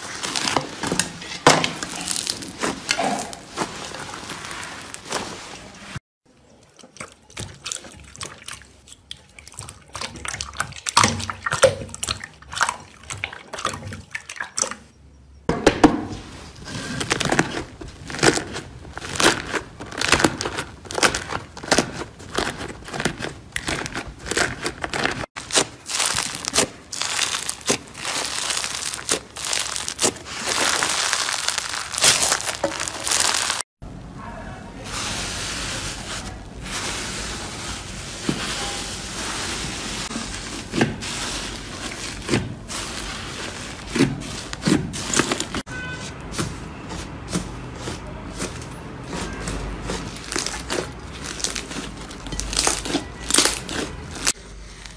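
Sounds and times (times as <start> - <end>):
slime squelching and popping: 17.1 - 33.7, 47.3 - 54.9.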